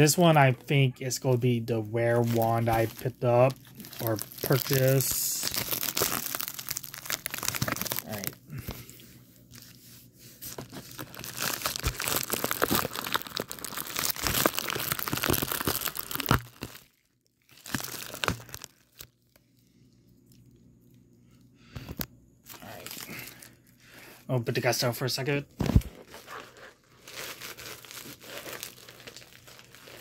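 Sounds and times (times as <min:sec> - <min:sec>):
plastic mailer crinkling: 0:01.1 - 0:08.4, 0:10.4 - 0:19.1, 0:25.6 - 0:30.0.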